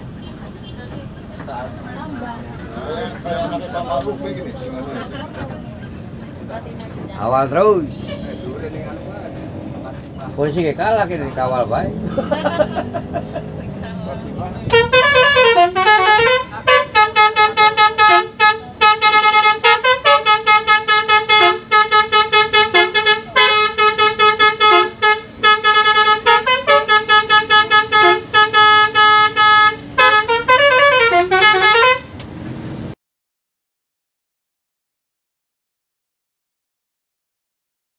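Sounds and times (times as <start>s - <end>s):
musical air horn melody: 14.7s - 32.2s.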